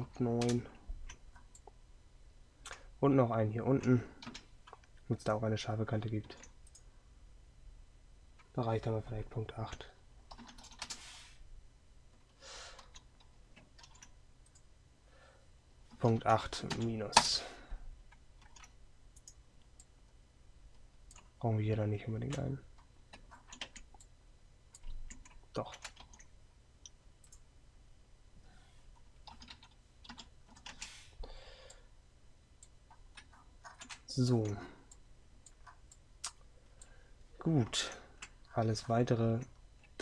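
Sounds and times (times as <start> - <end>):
computer keyboard and mouse clicks: 9.7 - 11.0, 12.8 - 14.7, 18.1 - 19.9, 23.1 - 24.1, 24.7 - 27.4, 29.2 - 30.9, 32.6 - 36.4
short soft hiss: 10.9 - 11.4.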